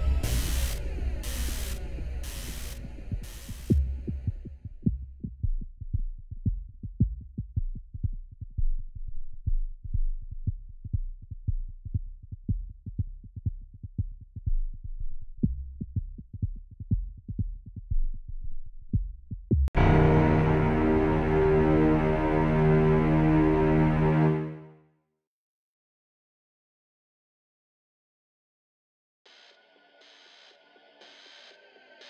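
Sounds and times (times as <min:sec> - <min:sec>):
low drone: 0:00.0 - 0:04.0, 0:19.8 - 0:24.6
burst of hiss: 0:00.2 - 0:03.8.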